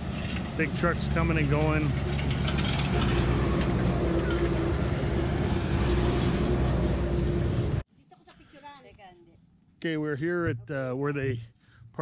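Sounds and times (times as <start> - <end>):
truck diesel engine passing: 0.0 - 7.8.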